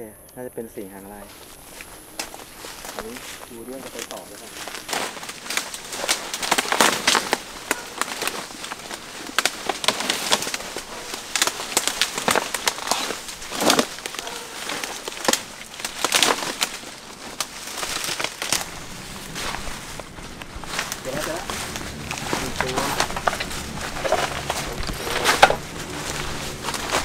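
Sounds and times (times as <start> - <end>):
rustling through undergrowth: 0.8 - 27.0.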